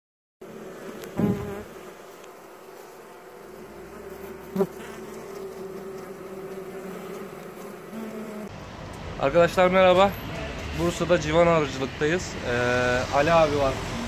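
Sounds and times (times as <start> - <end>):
bees buzzing: 0.4 - 8.6.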